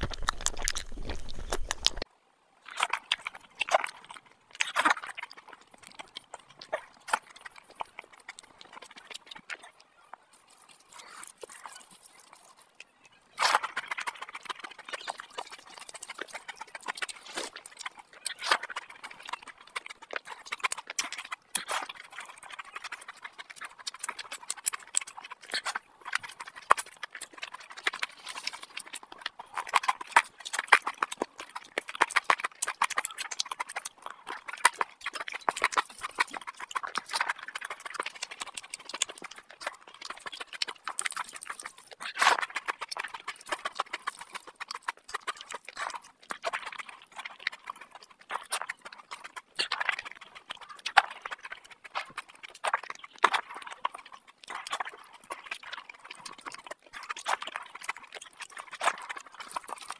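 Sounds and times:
fingers squelching through rice: 0.0s - 2.0s, 2.7s - 59.9s
wet chewing and lip smacking: 0.0s - 59.9s.

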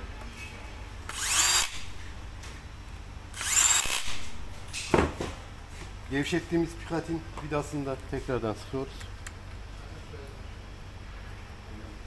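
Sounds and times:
drill motor whining: 1.1s - 2.1s, 3.3s - 4.5s.

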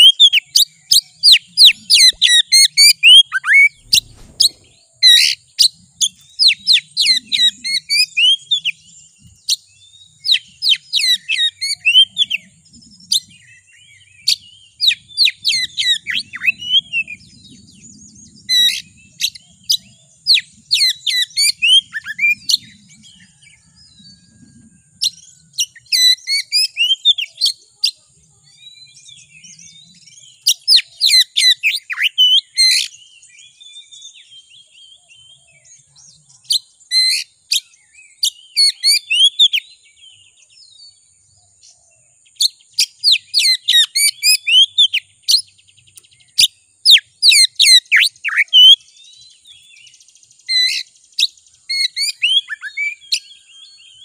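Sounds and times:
bird singing sharp whistles: 0.0s - 8.9s, 9.5s - 12.4s, 13.1s - 23.4s, 25.0s - 27.4s, 28.5s - 34.2s, 36.5s - 39.7s, 42.4s - 48.8s, 50.4s - 54.0s.

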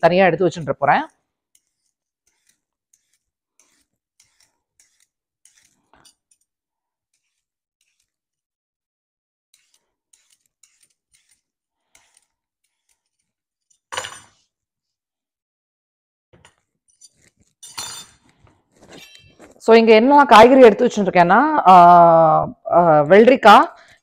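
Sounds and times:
peeler scraping cucumber: 0.0s - 8.5s, 9.5s - 15.0s, 16.4s - 19.6s.

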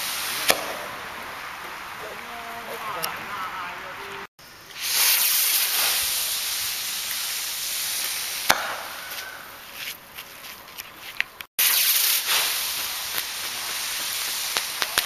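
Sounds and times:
firework launching with hiss: 0.0s - 2.1s, 4.4s - 10.0s, 11.6s - 15.0s
faint crackles: 4.0s - 15.0s
firework bang: 4.8s - 9.5s, 11.6s - 15.0s.

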